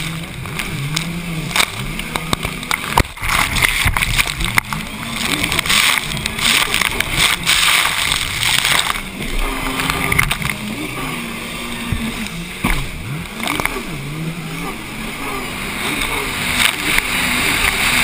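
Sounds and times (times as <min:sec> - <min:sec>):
jet ski engine revving: 0:00.0 - 0:18.0.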